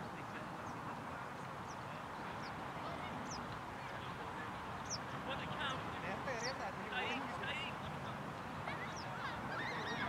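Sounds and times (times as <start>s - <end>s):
outdoor background hiss: 0.0s - 10.0s.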